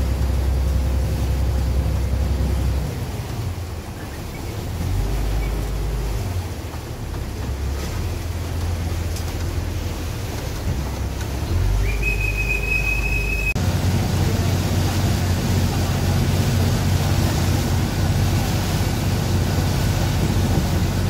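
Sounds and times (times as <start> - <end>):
boat engine rumbling: 0.0 - 21.0
high whistle note: 11.8 - 13.6.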